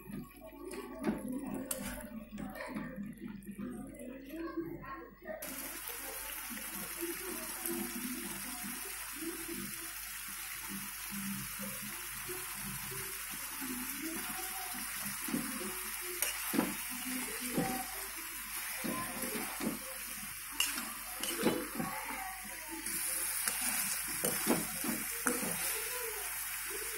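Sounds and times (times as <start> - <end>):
chicken sizzling in a wok: 5.4 - 26.9
steel spatula scraping wok: 20.5 - 21.8.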